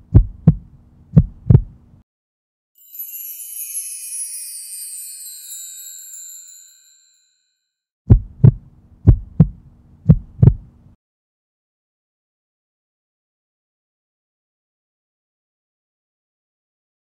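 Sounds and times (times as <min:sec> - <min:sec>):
heartbeat thumps: 0:00.0 - 0:01.9, 0:08.1 - 0:11.0
faint low hum: 0:00.0 - 0:02.0, 0:08.1 - 0:11.0
tinkling magic shimmer effect: 0:02.8 - 0:07.8.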